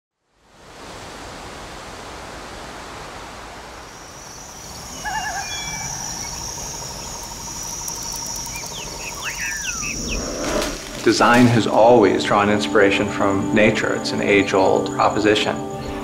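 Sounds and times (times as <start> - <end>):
steady rushing hiss: 0.6 - 16.0
insect buzz and trill: 3.8 - 16.0
birds calling: 4.0 - 11.9
quick falling chirps: 4.8 - 11.4.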